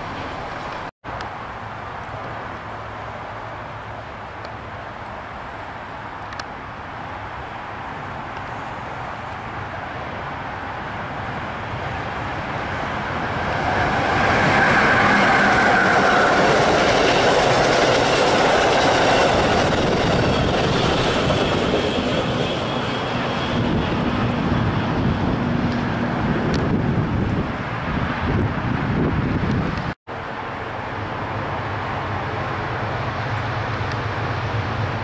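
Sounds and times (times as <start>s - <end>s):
electric train passing at speed: 0.0s - 35.0s
train wheels rushing on rails: 11.2s - 27.1s.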